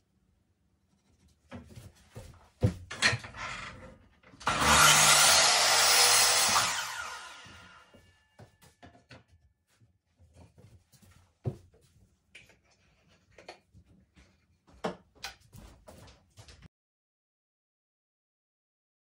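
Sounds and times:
mitre saw motor spinning down: 0:04.4 - 0:07.9.

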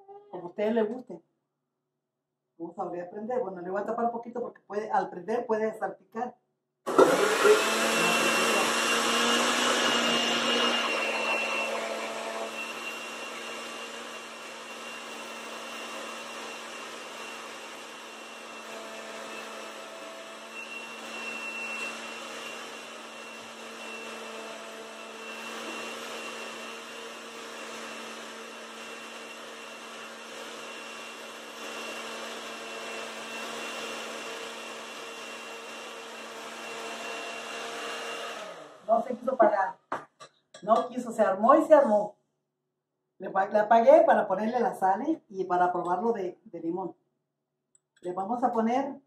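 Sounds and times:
blender running: 0:06.9 - 0:39.6.

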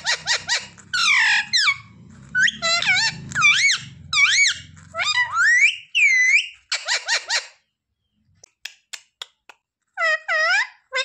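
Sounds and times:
parrot harsh call: 0:00.0 - 0:07.6
parrot squeaky chirps: 0:00.0 - 0:08.1, 0:09.9 - 0:11.0.

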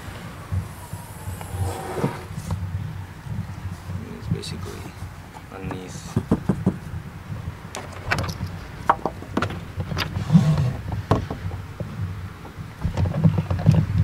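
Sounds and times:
low steady rumble: 0:00.0 - 0:05.4.

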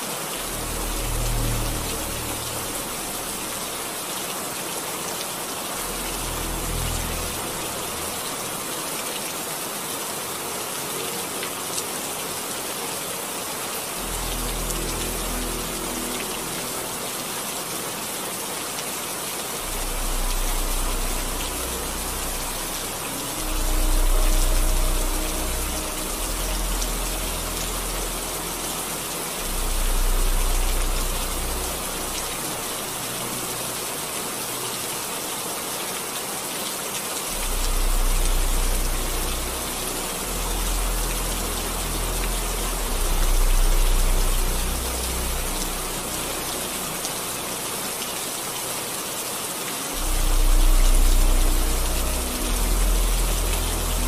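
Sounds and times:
steady rain hiss: 0:00.0 - 0:54.0
deep low rumbles: 0:19.6 - 0:33.0.

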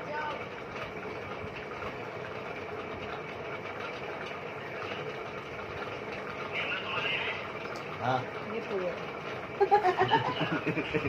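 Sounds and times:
room fan whirring: 0:00.0 - 0:11.0.

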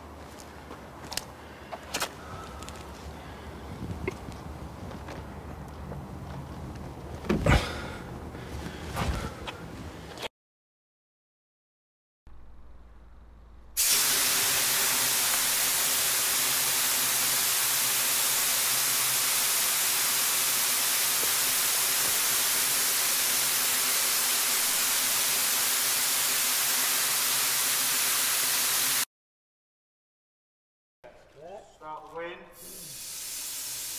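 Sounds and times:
loud even hiss: 0:13.8 - 0:29.1, 0:32.6 - 0:33.9.

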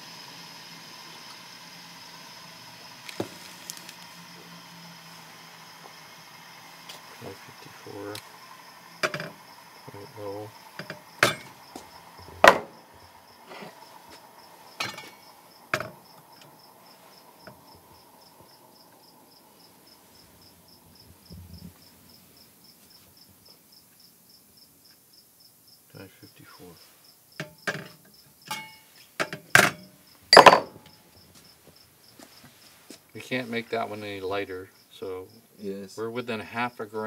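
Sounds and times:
metallic knocks of steel rods: 0:30.4 - 0:30.8.

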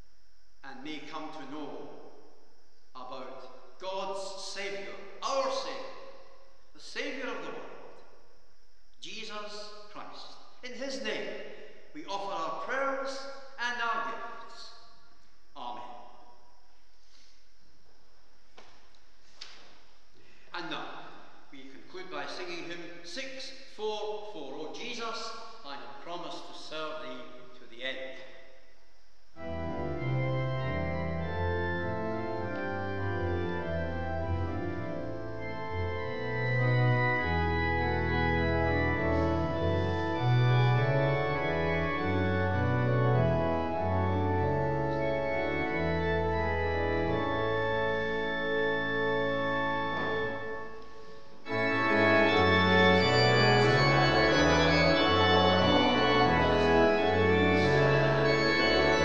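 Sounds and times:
church organ playing chords: 0:03.0 - 0:06.2, 0:06.8 - 0:08.0, 0:29.4 - 0:59.0.

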